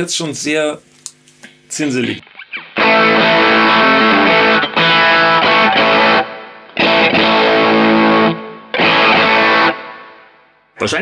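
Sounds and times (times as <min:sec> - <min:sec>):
fuzzed electric guitar chords: 0:02.2 - 0:10.7.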